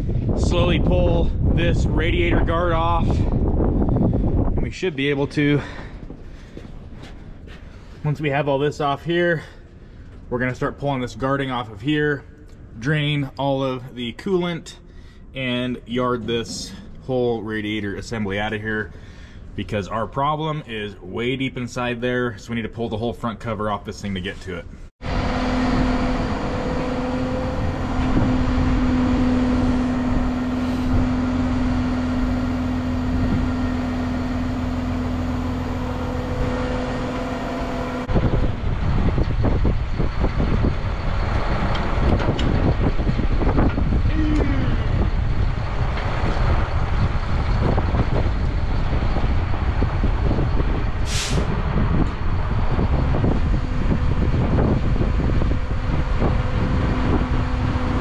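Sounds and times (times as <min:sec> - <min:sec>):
wind buffeting microphone: 0:00.0 - 0:07.9, 0:25.0 - 0:58.0
truck engine running: 0:25.0 - 0:58.0.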